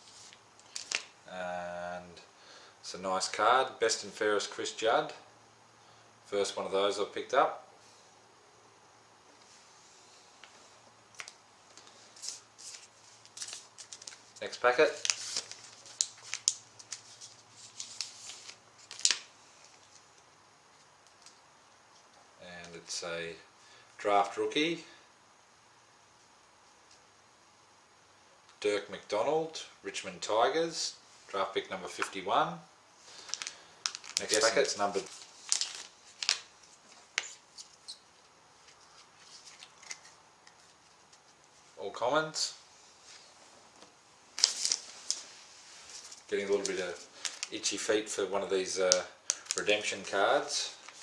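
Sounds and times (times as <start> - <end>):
foil wrapper crinkling: 0.2 - 1.1, 11.2 - 20.2, 33.1 - 41.5, 44.4 - 47.6, 48.9 - 51.0
cards rustling: 11.2 - 21.4, 33.1 - 41.6, 43.1 - 47.8, 48.8 - 51.0
card wrapper tearing: 14.8 - 19.3, 33.2 - 36.5, 39.2 - 40.2, 44.4 - 45.2, 49.3 - 50.1.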